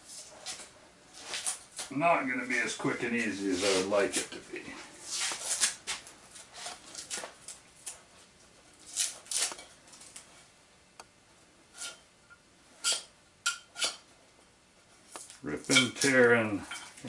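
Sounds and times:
lashing being torn by hand: 0:08.9 - 0:09.6.

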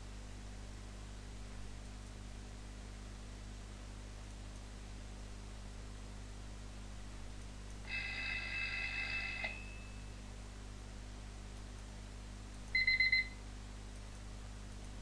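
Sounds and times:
steady high alarm tones: 0:07.9 - 0:10.2.

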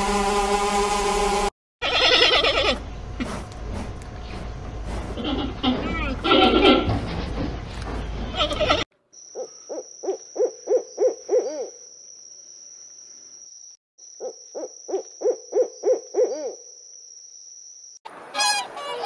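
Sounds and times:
owl hooting: 0:09.3 - 0:11.8, 0:14.2 - 0:16.7
geese honking: 0:18.3 - 0:19.0.

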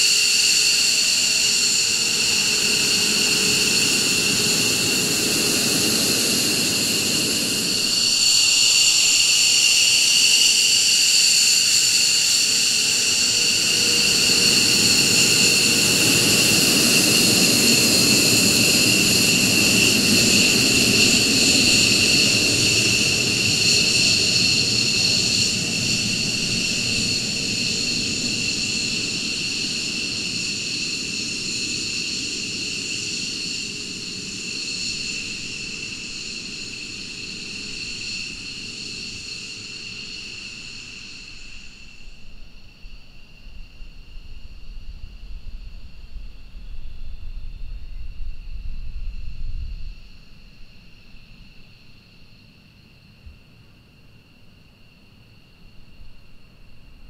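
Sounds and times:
jet engines whining: 0:00.0 - 0:42.0.

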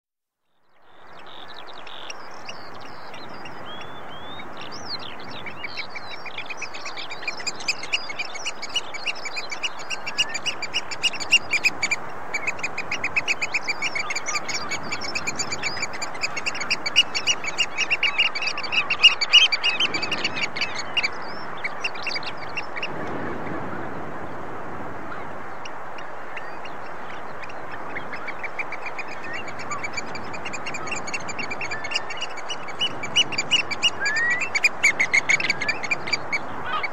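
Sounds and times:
oystercatcher piping: 0:01.7 - 0:22.9.

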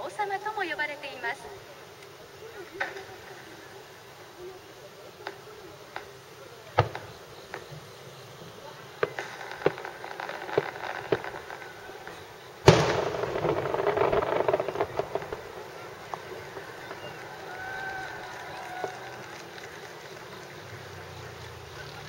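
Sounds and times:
distant firework pops: 0:05.2 - 0:08.0, 0:08.6 - 0:21.2
firework shell boom with crackle: 0:06.7 - 0:07.7, 0:09.0 - 0:18.1.

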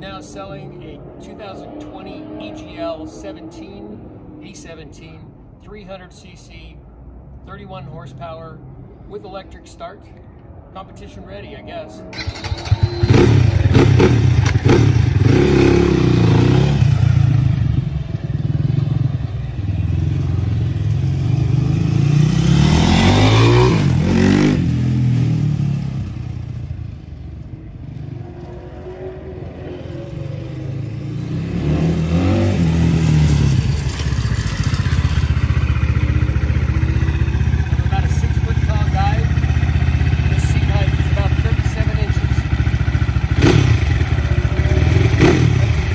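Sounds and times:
dirt bike engine revving: 0:12.2 - 0:26.4, 0:27.9 - 0:45.9.

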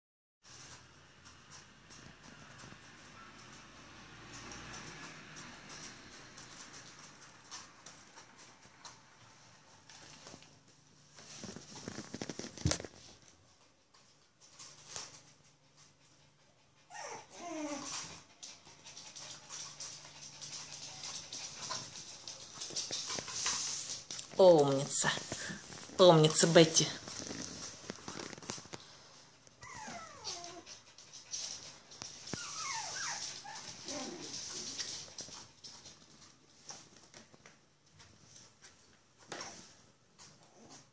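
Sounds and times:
puppy claws clicking on hard floor: 0:00.6 - 0:16.2, 0:17.6 - 0:28.9, 0:29.5 - 0:39.5
puppies whimpering: 0:16.8 - 0:18.2, 0:29.6 - 0:30.7, 0:32.3 - 0:34.4.

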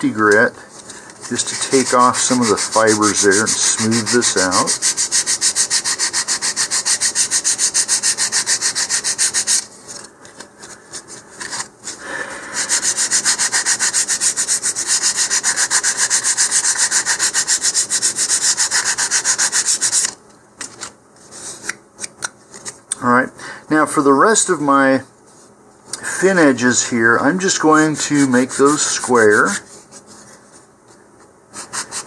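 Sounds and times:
sandpaper rubbing back and forth: 0:01.2 - 0:09.7, 0:12.5 - 0:20.2, 0:27.4 - 0:30.3, 0:31.6 - 0:32.0.

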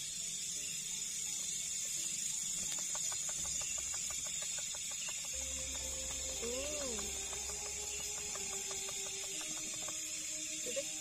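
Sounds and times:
night insects buzzing: 0:00.0 - 0:11.0
animal clicking pulses: 0:02.6 - 0:11.0
steady low tone: 0:05.3 - 0:11.0.

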